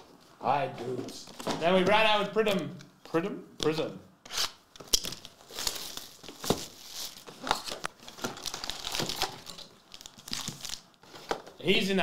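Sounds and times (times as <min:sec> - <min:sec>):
cardboard and packs clicking: 0:04.8 - 0:11.5
plastic shrink wrap crinkling and tearing: 0:04.9 - 0:11.4.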